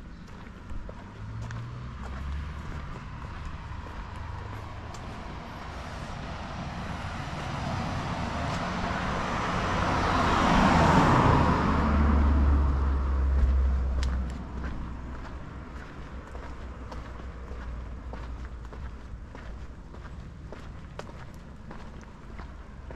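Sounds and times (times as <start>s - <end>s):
car driving past: 0.2s - 18.3s.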